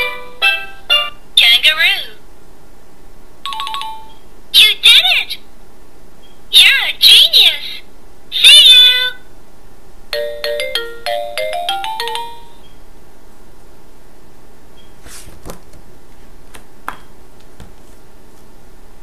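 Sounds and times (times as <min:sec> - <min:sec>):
loud recorded call: 0:06.5 - 0:09.3
page turning rustles and clicks: 0:15.0 - 0:15.9.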